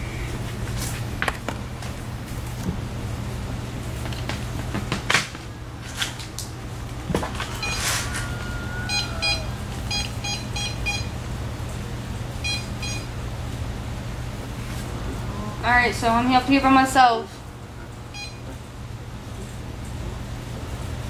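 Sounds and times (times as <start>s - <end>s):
steady low hum: 0.0s - 21.0s
electronic device beeping: 7.6s - 7.9s, 8.9s - 11.2s, 12.4s - 13.2s, 18.1s - 18.5s.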